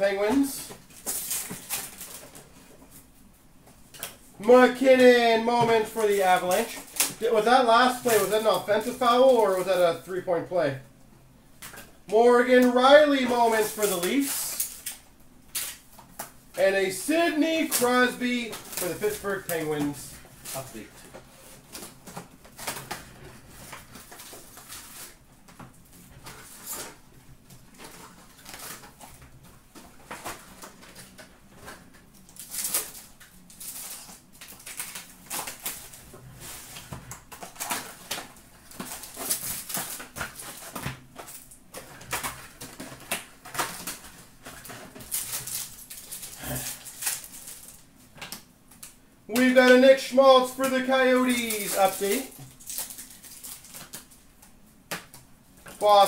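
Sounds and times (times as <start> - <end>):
rustling and crinkling card packs: 0.0 - 10.9, 11.6 - 56.0.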